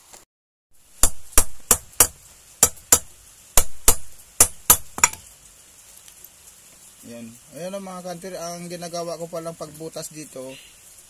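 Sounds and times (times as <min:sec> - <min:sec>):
hammer striking metal: 0:01.0 - 0:05.2.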